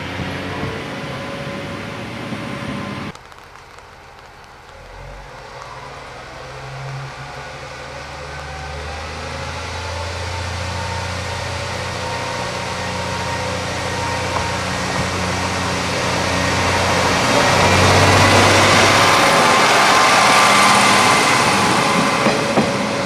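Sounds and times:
diesel railcar engine running: 4.8s - 23.0s.

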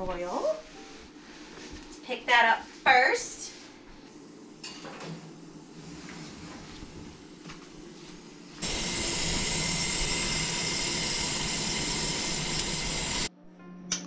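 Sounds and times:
chicken hissing under broiler: 8.6s - 13.3s.

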